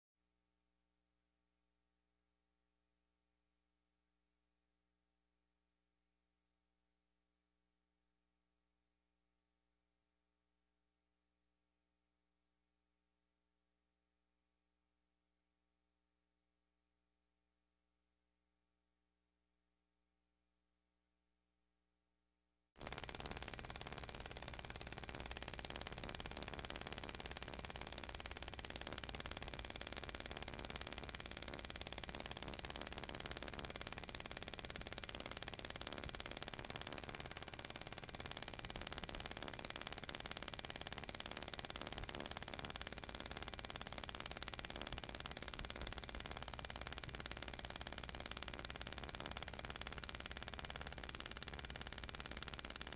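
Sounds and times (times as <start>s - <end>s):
film projector running: 22.8s - 52.9s.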